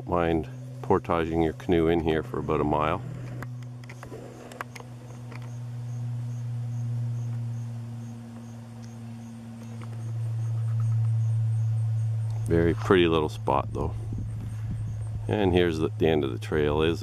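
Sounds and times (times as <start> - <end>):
low steady hum: 0.0 - 17.0
insects chirping: 0.2 - 16.9.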